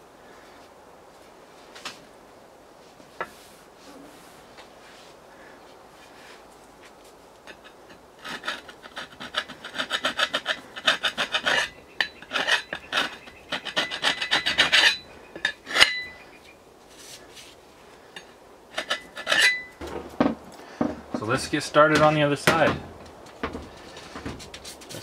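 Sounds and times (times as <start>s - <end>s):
file rasping on steel: 7.5s - 16.0s, 18.7s - 19.8s.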